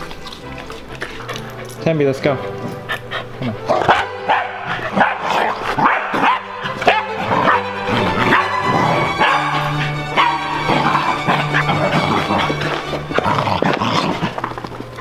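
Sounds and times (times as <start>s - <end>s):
background music: 0.0s - 15.0s
dog barking: 3.8s - 12.6s.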